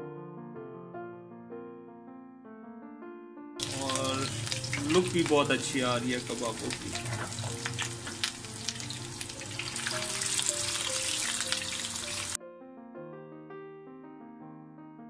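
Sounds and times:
soft piano music: 0.0 - 15.0
food sizzling and popping in oil: 3.6 - 12.4.

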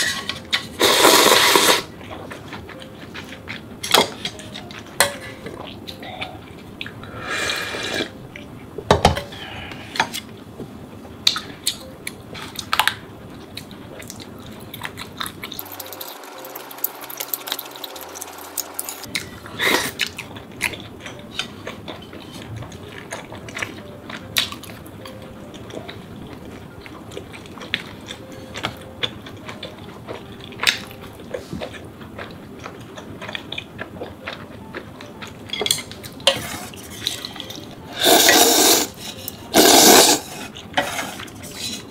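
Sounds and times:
chewing and mouth noises: 11.2 - 41.9.

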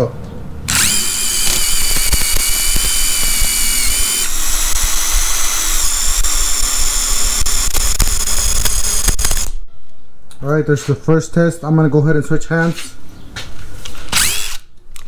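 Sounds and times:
impact drivers drilling into wood: 0.7 - 9.5, 14.1 - 14.6.

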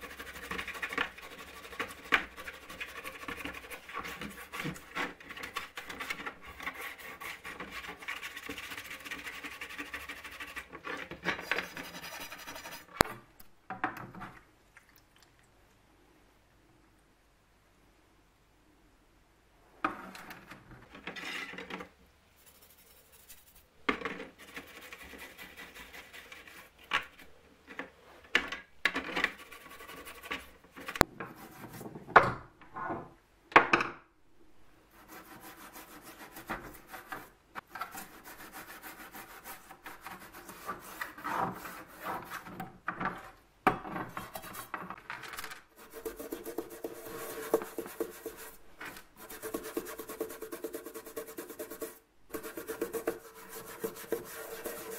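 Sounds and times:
toothbrush scrubbing metal: 0.0 - 13.0, 24.4 - 26.7, 29.3 - 31.7, 45.8 - 48.6, 49.2 - 54.9.

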